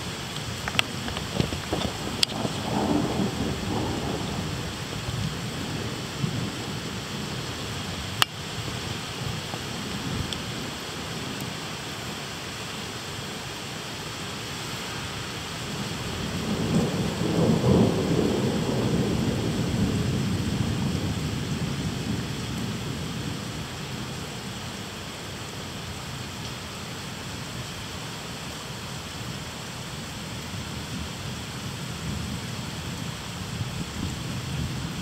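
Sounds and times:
low rumble of thunder: 0.0 - 11.5, 15.7 - 24.8, 30.4 - 35.0
steady rain falling: 0.0 - 35.0.

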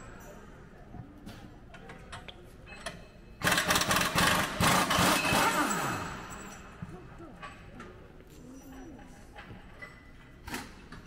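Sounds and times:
pneumatic impact wrench rattling: 3.4 - 6.7.

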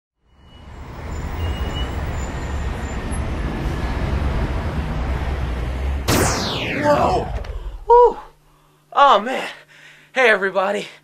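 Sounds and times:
low rumble with hiss: 6.0 - 9.0.

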